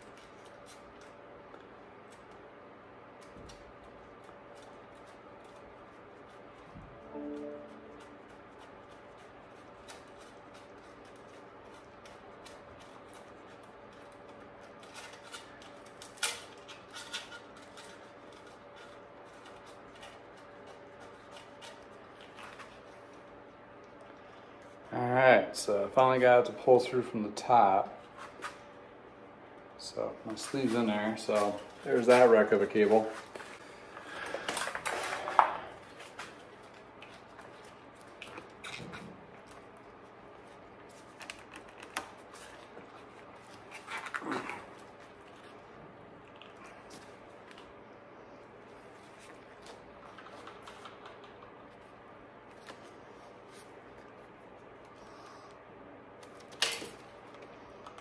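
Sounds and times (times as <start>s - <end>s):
faint steady hum: 0.0s - 58.0s
rustling of bicycle parts: 8.4s - 23.3s, 30.3s - 45.8s
bicycle cable clicking and scraping: 8.6s - 22.8s.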